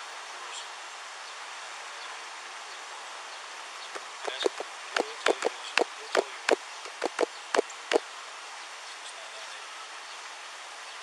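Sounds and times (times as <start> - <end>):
steady background hiss: 0.0 - 11.0
sharp taps: 4.0 - 7.7.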